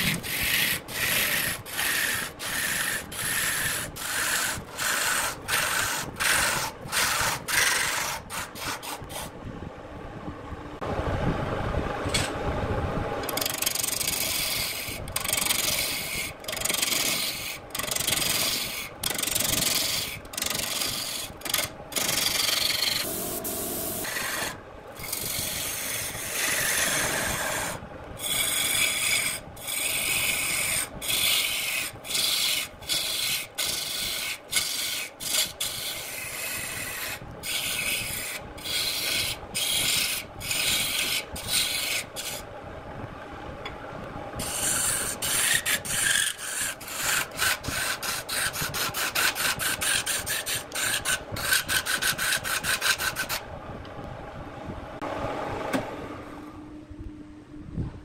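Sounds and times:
lathe tool cutting wood: 0:00.0 - 0:09.0, 0:13.3 - 0:23.2, 0:24.0 - 0:42.4, 0:44.4 - 0:53.4.

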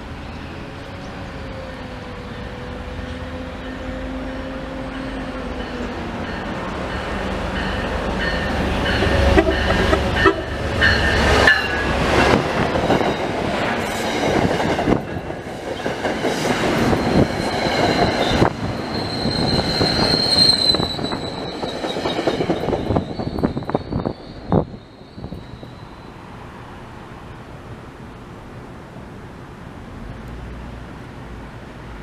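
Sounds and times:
train passing: 0:00.0 - 0:32.0
high wheel squeal: 0:18.2 - 0:26.3.

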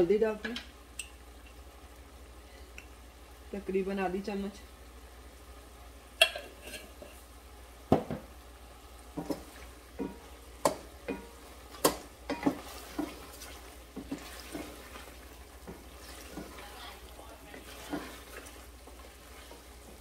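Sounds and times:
chicken frying quietly: 0:00.0 - 0:20.0
wooden spoon scraping metal pot: 0:06.2 - 0:07.2, 0:11.1 - 0:20.0.

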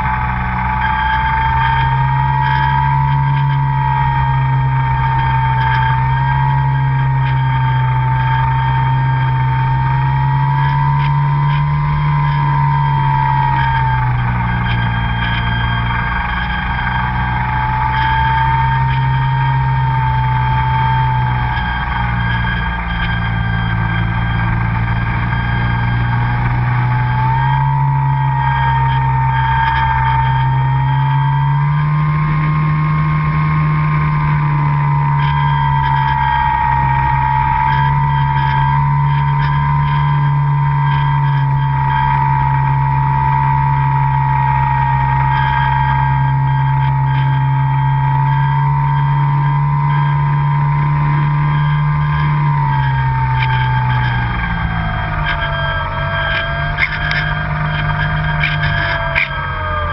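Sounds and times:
model plane motor droning and whining: 0:00.0 - 0:59.9.

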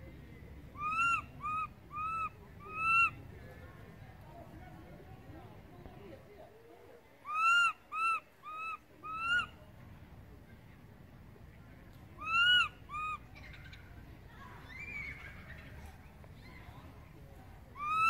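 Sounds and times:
baby macaque coo-calls: 0:00.8 - 0:03.2, 0:07.2 - 0:09.5, 0:12.2 - 0:13.8, 0:17.8 - 0:18.0.

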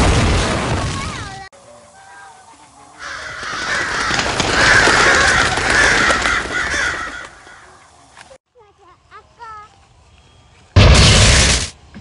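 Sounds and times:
crows cawing: 0:03.0 - 0:07.9.

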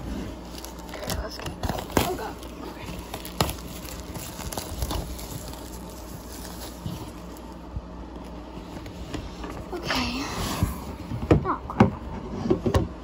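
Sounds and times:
plastic wrap rustling: 0:00.0 - 0:09.8.

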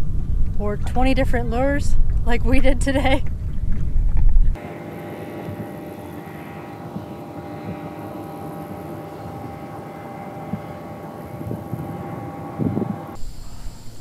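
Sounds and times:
boat motor running: 0:04.5 - 0:13.2.

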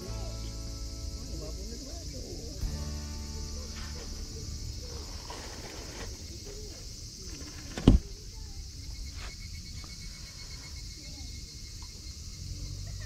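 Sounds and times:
steady high hiss: 0:00.0 - 0:08.6.

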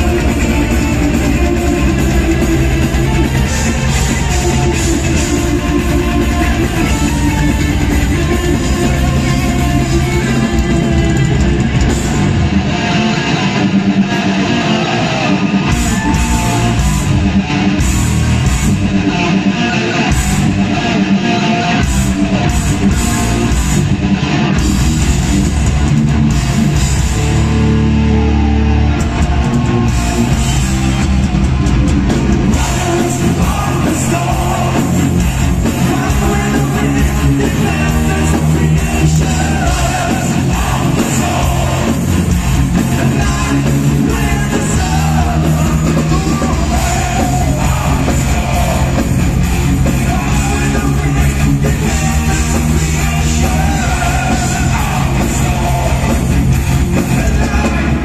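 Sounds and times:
metal band playing live: 0:00.0 - 0:58.0
person singing: 0:32.5 - 0:49.2, 0:49.8 - 0:56.3.

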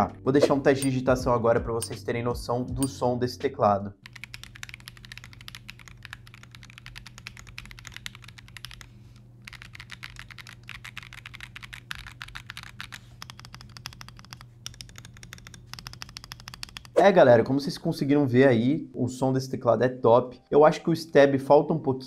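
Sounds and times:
fast typing on mechanical keyboard: 0:04.0 - 0:17.0.

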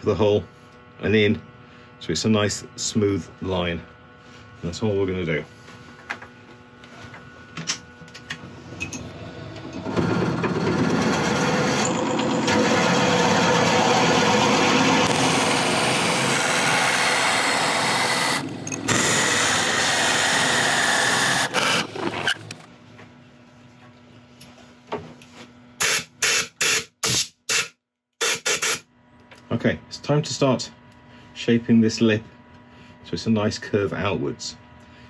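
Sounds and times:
drill bit boring into wood: 0:09.0 - 0:22.7.

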